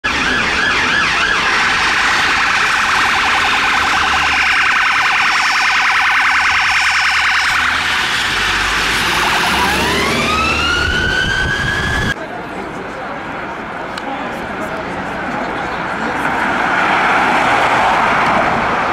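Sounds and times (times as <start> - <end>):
police siren: 0.0 - 12.2
traffic and engine rumble: 0.0 - 18.9.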